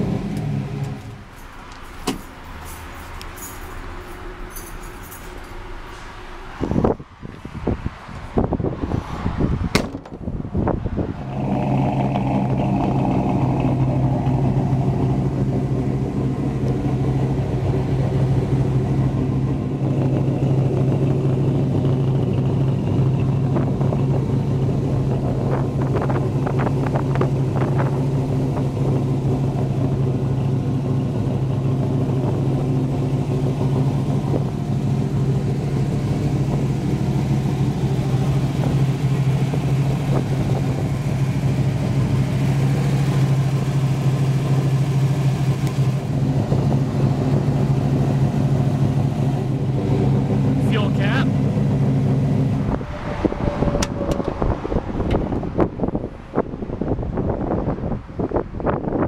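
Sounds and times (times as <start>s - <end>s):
engine knocks: 9.7s - 10.7s
engine idling: 11.2s - 55.5s.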